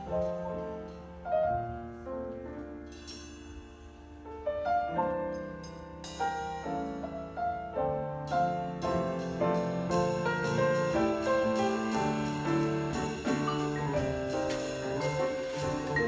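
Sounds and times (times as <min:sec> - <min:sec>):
grand piano chords: 0:00.0 - 0:16.0
light drums: 0:08.3 - 0:16.0
vibraphone melody: 0:11.8 - 0:16.0.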